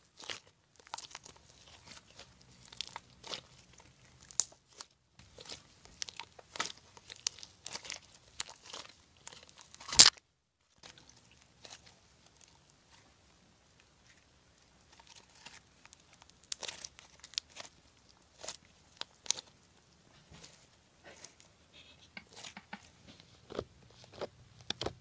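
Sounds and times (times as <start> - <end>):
slime crackling and popping: 0.1 - 10.2, 14.9 - 19.6.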